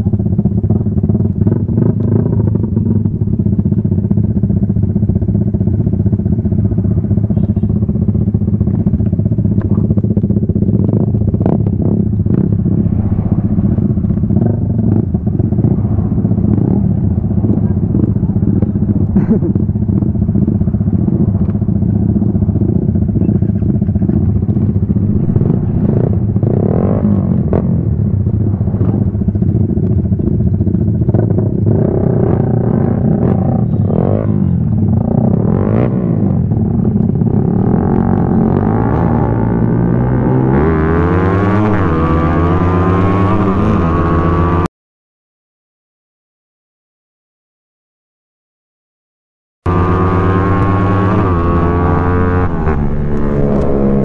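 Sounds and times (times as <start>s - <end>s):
motorcycle engine idling: 0.0s - 13.1s, 13.8s - 35.6s
motorcycle engine revving: 0.0s - 44.7s, 49.7s - 54.0s
vehicles passing: 0.0s - 44.7s, 49.7s - 54.0s.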